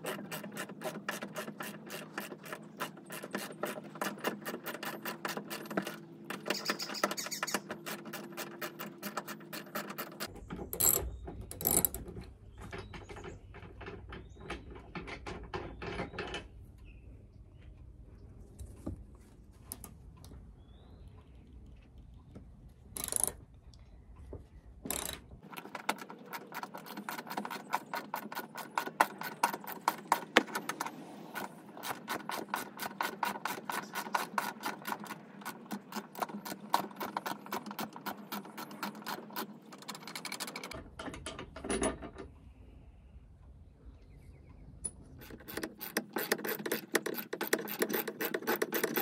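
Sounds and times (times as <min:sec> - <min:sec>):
ratchet wrench clicking: 0:23.0 - 0:23.4, 0:24.9 - 0:25.2.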